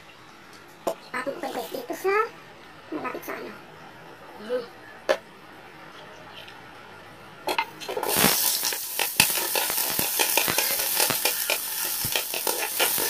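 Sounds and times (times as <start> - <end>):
onion sizzling in hot oil: 7.8 - 13.0
metal ladle scraping a wok: 7.9 - 13.0.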